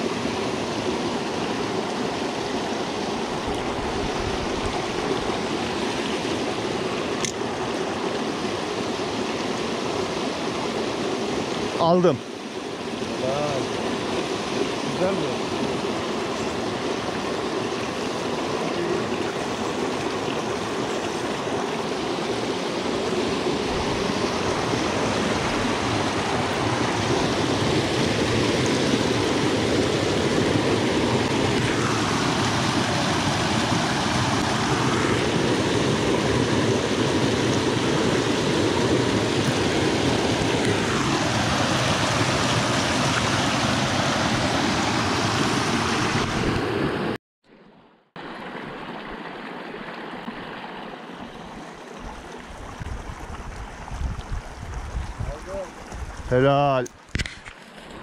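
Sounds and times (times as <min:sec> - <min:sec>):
mountain stream rushing over rocks: 0:00.0 - 0:47.2, 0:48.2 - 0:58.0.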